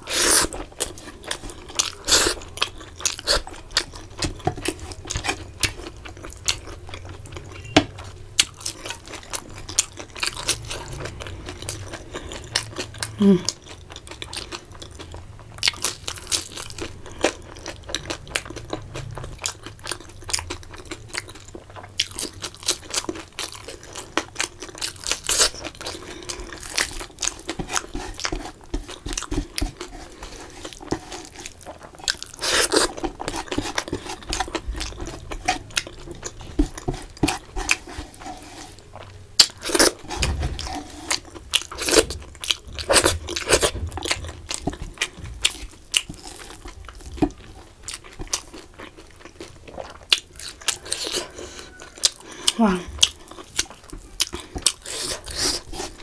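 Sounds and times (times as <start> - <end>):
person chewing crunchy food: 0.0 - 56.0.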